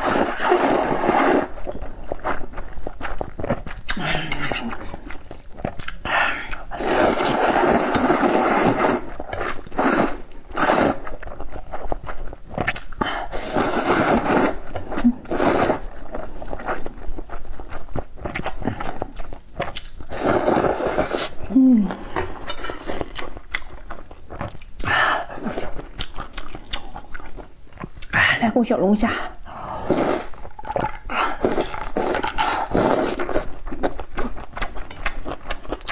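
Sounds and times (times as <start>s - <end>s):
noodles being slurped: 0.0s - 27.0s, 29.7s - 35.9s
chewing and mouth smacks: 1.5s - 6.7s, 7.4s - 13.1s, 15.8s - 21.4s, 22.1s - 24.9s, 25.6s - 28.2s, 30.2s - 35.9s.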